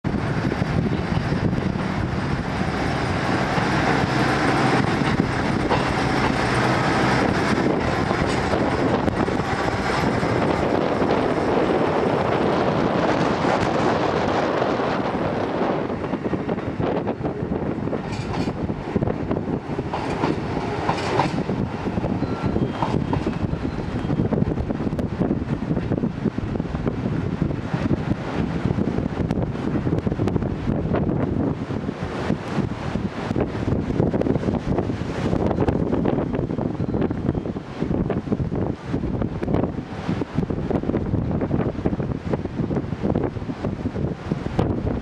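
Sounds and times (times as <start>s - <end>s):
diesel train engines: 0.1s - 45.0s
wheels on rails din: 0.1s - 45.0s
wheels clacking over rail joints: 0.9s - 11.5s, 18.0s - 24.0s.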